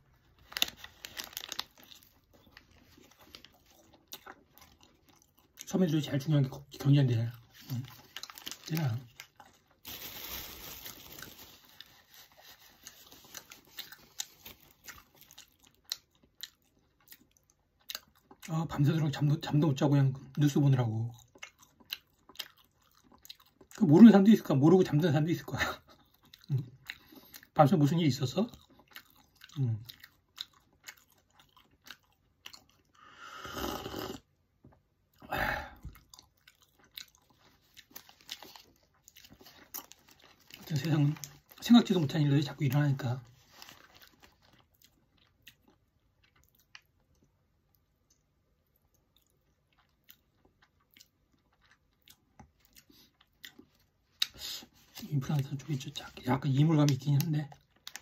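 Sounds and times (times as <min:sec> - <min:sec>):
man chewing: 0:00.1 - 0:05.7, 0:07.4 - 0:09.8, 0:11.2 - 0:18.5, 0:21.1 - 0:23.8, 0:25.9 - 0:27.6, 0:28.5 - 0:41.6, 0:43.4 - 0:55.1, 0:57.5 - 0:58.0
paper tissue rustling: 0:00.4 - 0:01.8, 0:09.8 - 0:14.7, 0:43.3 - 0:44.3
man slurping coffee: 0:33.2 - 0:34.2
faint chewing clicks: 0:44.3 - 0:54.4, 0:56.8 - 0:58.0.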